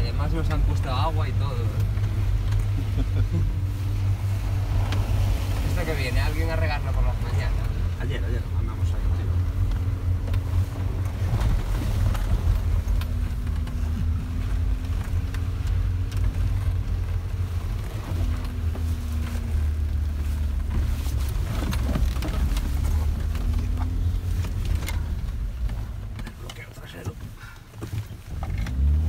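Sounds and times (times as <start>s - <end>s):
engine drone inside car: 0.0s - 29.0s
knocks and rattles from bumps: 4.0s - 29.0s.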